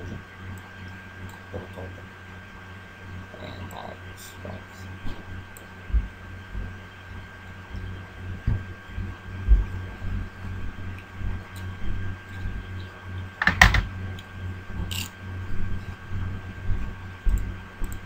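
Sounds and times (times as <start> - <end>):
faint electrical hum: 0.0 - 18.0
soft low thumps: 5.9 - 6.8, 7.7 - 10.3.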